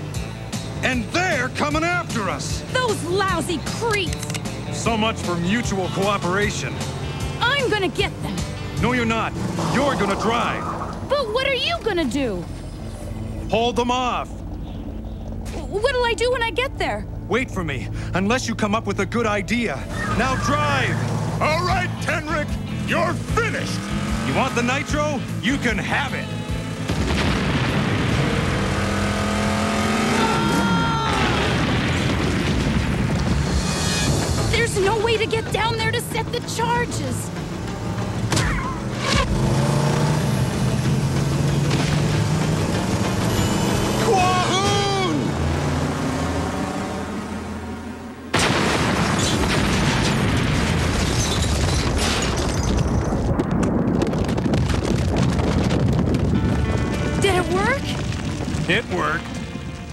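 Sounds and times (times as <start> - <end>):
dramatic background music: 0.0 - 48.6
car engine running: 0.0 - 51.0
cartoon explosion rumble: 26.9 - 28.6, 30.5 - 34.4, 48.3 - 56.5.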